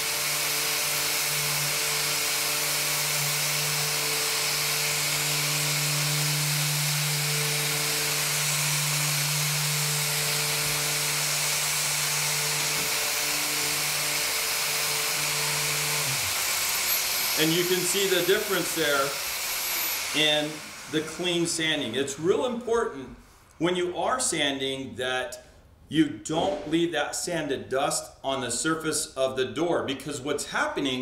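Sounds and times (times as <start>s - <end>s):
electric sander running: 0.0s - 22.0s
vacuum hiss: 0.0s - 22.4s.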